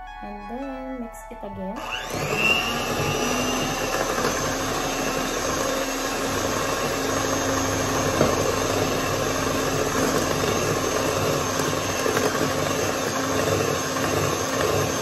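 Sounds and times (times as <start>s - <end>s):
electric mixer whining: 1.8s - 15.0s.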